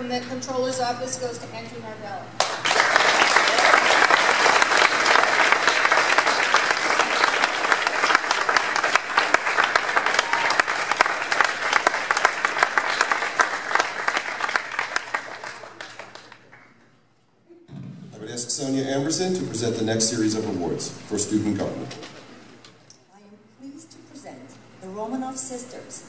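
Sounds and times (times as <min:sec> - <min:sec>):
audience applauding: 0:02.4 - 0:16.8.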